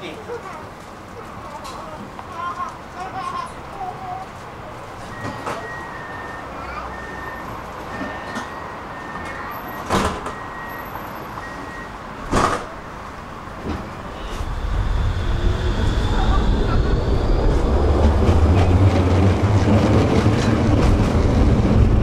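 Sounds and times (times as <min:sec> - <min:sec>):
tram rumble: 0:00.0 - 0:22.0
door warning beeps: 0:05.1 - 0:12.0
sliding doors knocking shut: 0:09.8 - 0:10.4, 0:12.2 - 0:12.8
rising motor whine: 0:14.1 - 0:20.8.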